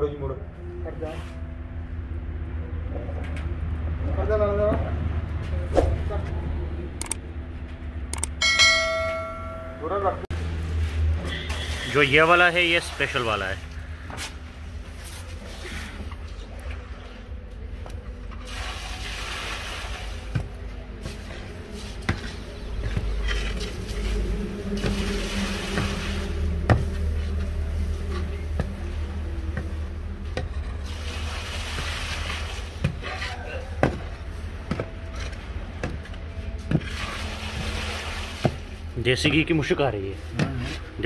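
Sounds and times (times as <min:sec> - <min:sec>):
low rumble: 0:20.0 - 0:32.8.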